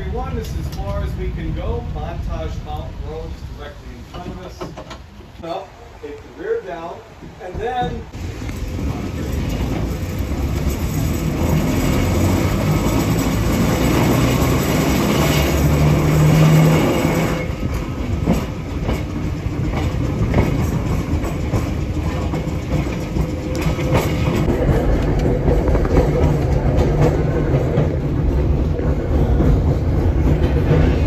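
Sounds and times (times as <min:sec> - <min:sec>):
wheels rumbling on rail: 0:00.0 - 0:31.0
clicks over rail joints: 0:04.1 - 0:05.1.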